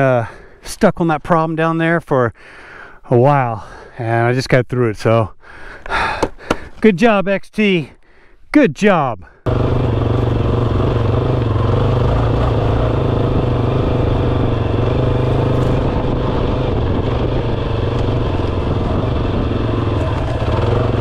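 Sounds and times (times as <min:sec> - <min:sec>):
motorcycle engine running: 0:09.5 - 0:21.0.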